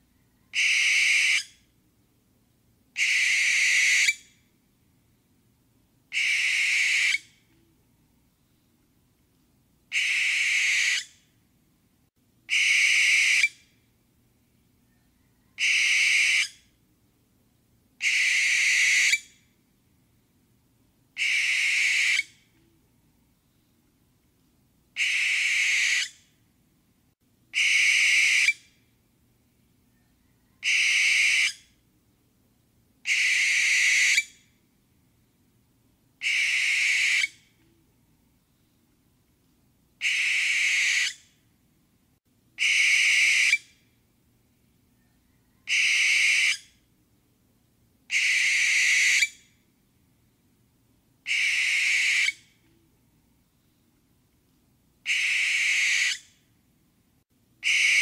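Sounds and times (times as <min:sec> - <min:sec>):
barn owl screeching: 0:00.5 - 0:01.6, 0:03.0 - 0:04.3, 0:06.1 - 0:07.3, 0:09.9 - 0:11.2, 0:12.5 - 0:13.6, 0:15.5 - 0:16.6, 0:18.0 - 0:19.3, 0:21.2 - 0:22.3, 0:25.0 - 0:26.2, 0:27.6 - 0:28.6, 0:30.5 - 0:31.6, 0:33.1 - 0:34.4, 0:36.2 - 0:37.4, 0:40.0 - 0:41.2, 0:42.6 - 0:43.7, 0:45.3 - 0:46.7, 0:48.1 - 0:49.4, 0:51.3 - 0:52.4, 0:55.0 - 0:56.3, 0:57.6 - 0:58.0.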